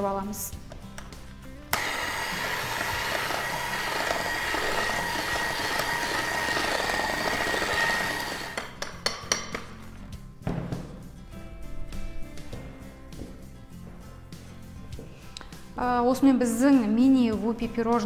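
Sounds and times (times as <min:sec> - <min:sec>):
electric hand mixer whining: 0:01.7 - 0:08.8.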